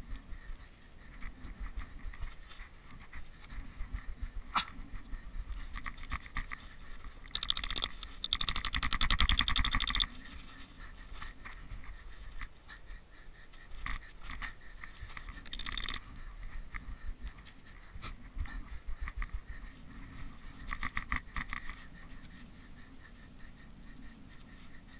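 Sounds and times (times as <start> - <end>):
rasping burst of rapid clicks: 7.2 - 10.1, 15.4 - 16.0.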